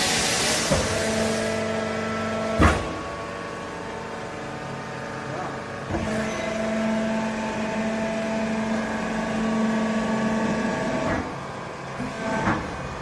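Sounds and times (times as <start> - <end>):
hydraulic pump motor humming: 0.0 - 13.0.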